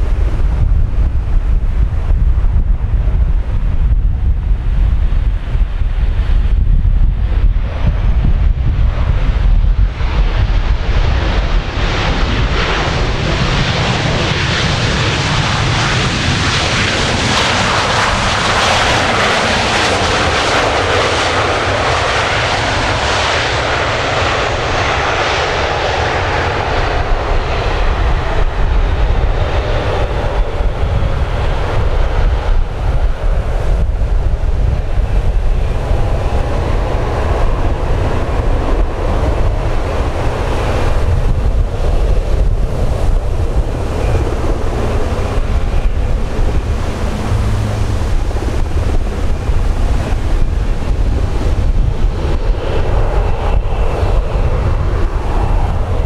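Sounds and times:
wind rumble on microphone: 0:00.0 - 0:56.0
jet engines spooling down: 0:09.0 - 0:56.0.

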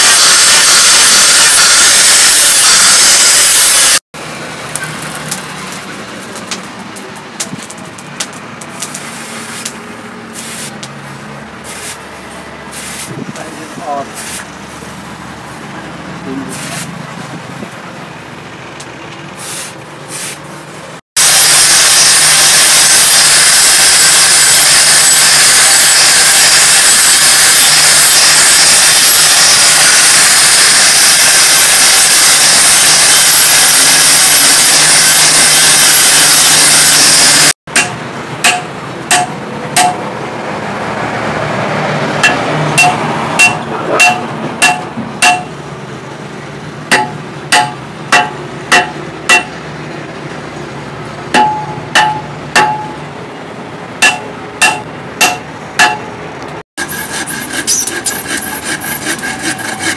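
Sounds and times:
angle grinder grinding steel: 0:00.0 - 0:04.0, 0:21.2 - 0:37.6, 0:56.8 - 0:59.9
hammer tapping metal: 0:37.7 - 0:40.1, 0:42.2 - 0:45.6, 0:46.9 - 0:49.6, 0:51.3 - 0:53.1, 0:54.0 - 0:56.2.

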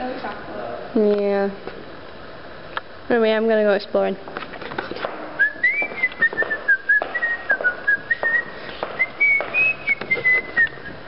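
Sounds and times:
footsteps: 0:04.2 - 0:11.0
person whistling a tune: 0:05.4 - 0:11.0.

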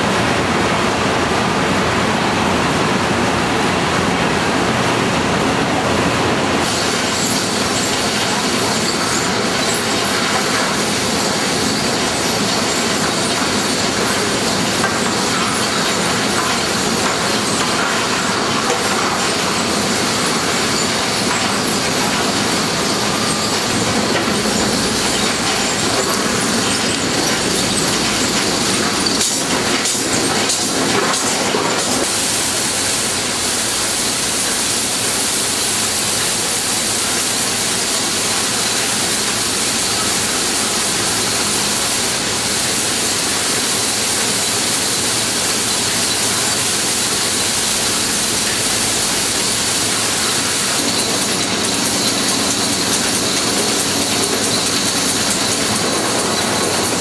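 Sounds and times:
steady hum: 0:00.0 - 0:36.6
train wheel clatter: 0:06.6 - 0:57.0.

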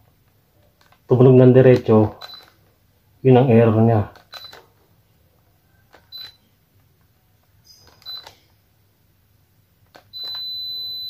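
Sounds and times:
remote button presses: 0:07.7 - 0:08.5.

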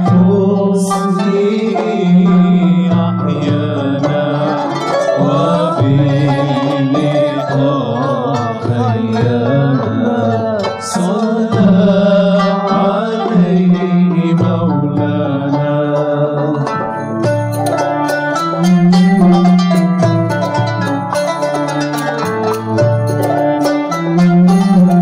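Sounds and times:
ornamented gliding melody: 0:16.7 - 0:25.0.

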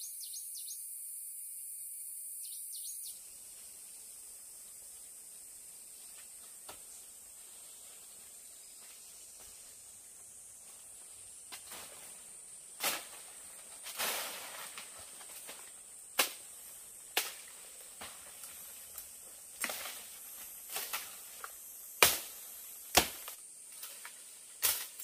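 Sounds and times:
high background hiss: 0:00.0 - 0:25.0
leaves rustling: 0:03.1 - 0:25.0
twigs snapping: 0:13.8 - 0:16.5, 0:17.1 - 0:20.0.

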